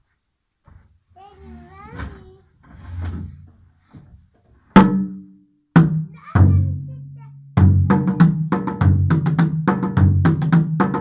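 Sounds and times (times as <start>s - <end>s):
bass drums struck with sticks: 7.6s - 11.0s.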